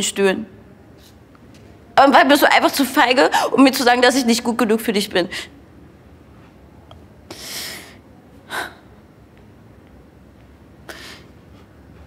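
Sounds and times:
person sniffing: 7.3s - 8.8s.

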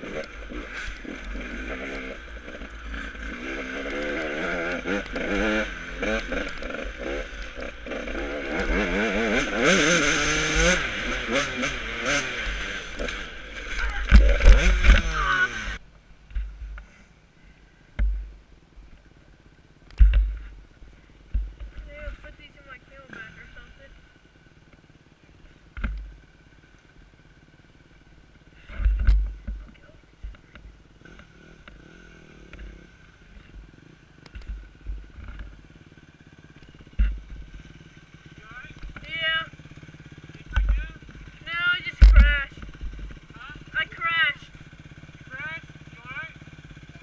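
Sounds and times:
dirt bike engine revving: 0.0s - 15.8s, 19.9s - 47.0s
dirt bike engine putter: 0.0s - 16.9s, 34.2s - 35.6s, 39.8s - 43.7s.

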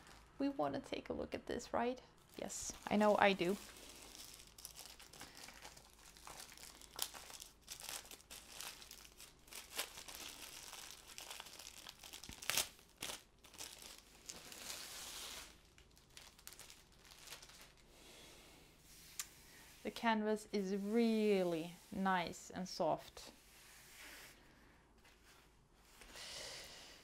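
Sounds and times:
plastic wrapping crinkling: 0.0s - 0.4s, 2.2s - 17.9s.

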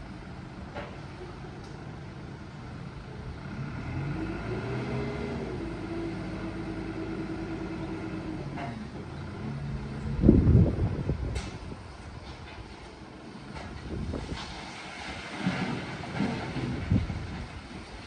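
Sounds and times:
engine hum rising in pitch: 3.5s - 11.2s
steady low rumble: 9.7s - 12.7s.

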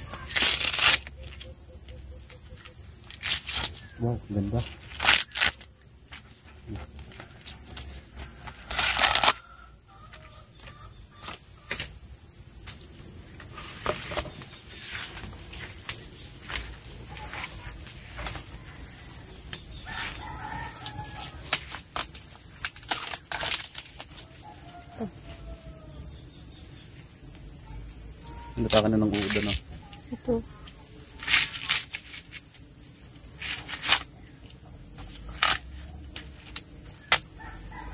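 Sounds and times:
corn husk crackling rustles: 0.0s - 1.4s, 3.0s - 9.6s, 19.8s - 25.5s, 28.6s - 29.7s, 31.2s - 32.6s, 33.4s - 34.1s
high insect drone: 0.0s - 37.9s
rooster crowing: 8.1s - 11.4s, 18.4s - 21.7s, 24.1s - 26.3s, 37.3s - 37.9s.

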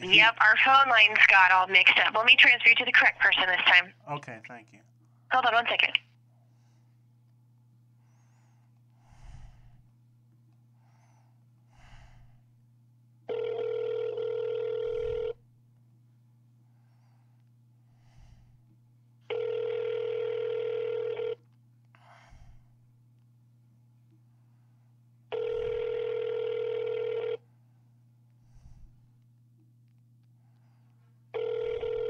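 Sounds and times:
telephone ringback tone: 13.3s - 15.4s, 19.3s - 21.4s, 25.3s - 27.4s, 31.4s - 32.0s.

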